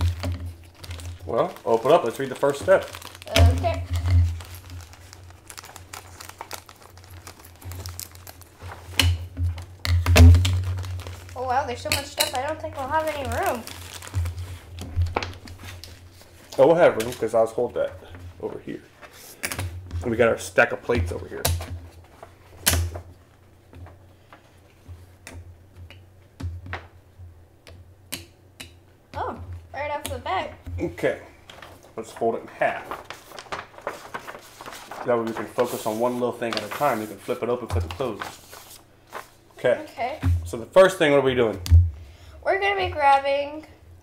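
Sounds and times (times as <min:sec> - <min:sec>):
plastic and paper crinkling: 0:00.0 - 0:25.1, 0:30.8 - 0:40.6.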